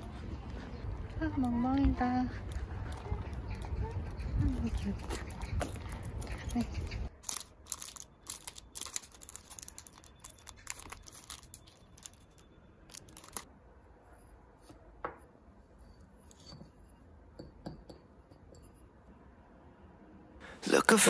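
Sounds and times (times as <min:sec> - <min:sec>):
rustling and crinkling: 0:02.8 - 0:13.5.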